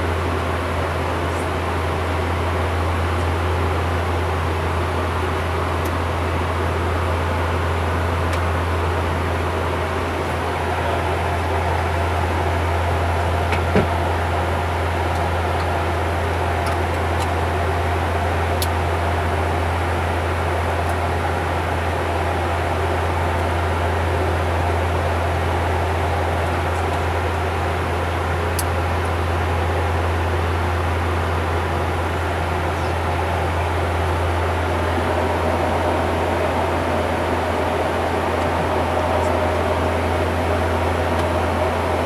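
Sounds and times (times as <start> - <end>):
propeller engine drone: 0.0 - 42.0
airflow rush: 33.3 - 42.0.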